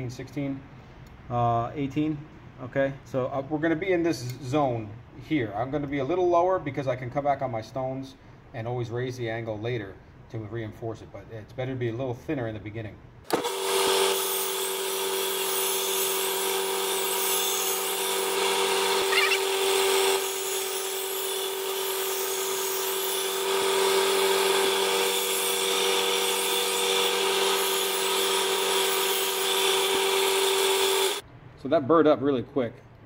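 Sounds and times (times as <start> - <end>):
belt grinder running: 13.3 - 31.2.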